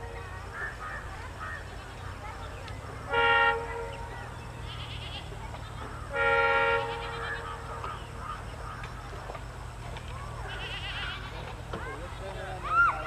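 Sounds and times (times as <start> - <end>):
diesel locomotive rumble: 0.0 - 12.6
locomotive horn: 3.0 - 5.3, 6.0 - 7.8
faint animal calls: 10.4 - 13.0.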